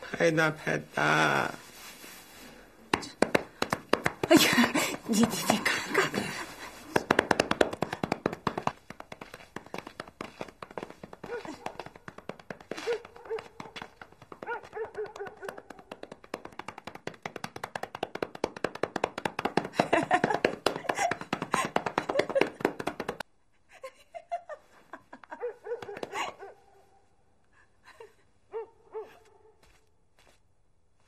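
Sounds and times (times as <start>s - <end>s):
woman laughing: 4.2s - 7.0s, 23.7s - 26.5s.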